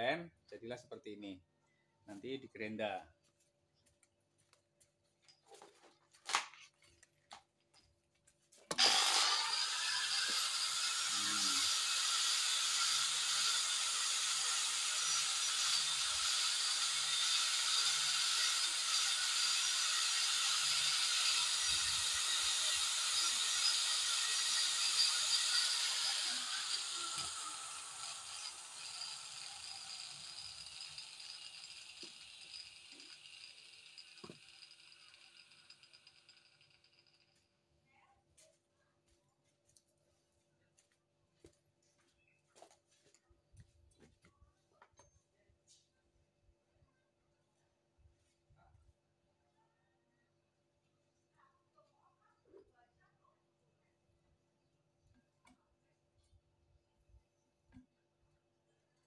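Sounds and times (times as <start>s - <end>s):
angle grinder switching on: 8.7s - 36.4s.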